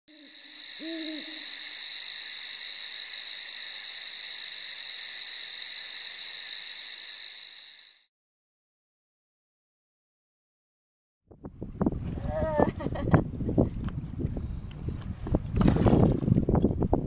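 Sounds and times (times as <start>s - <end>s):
owl hooting: 0.1s - 8.0s
high-pitched insect trill: 0.1s - 8.1s.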